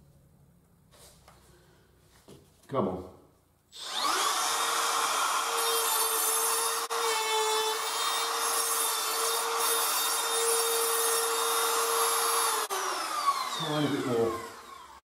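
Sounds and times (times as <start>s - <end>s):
trim router high whine: 3.8s - 8.5s, 9.1s - 15.0s.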